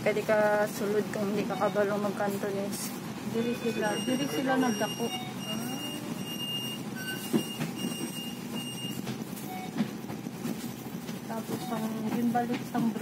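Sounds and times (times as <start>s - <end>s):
bus engine rumble: 0.0s - 13.0s
street noise: 0.0s - 13.0s
high electronic beeps: 3.4s - 9.7s.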